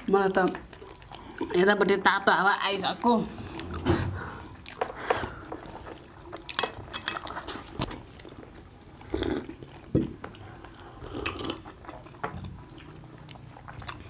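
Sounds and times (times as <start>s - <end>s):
people chewing: 0.0s - 14.0s
slurping: 3.0s - 6.6s.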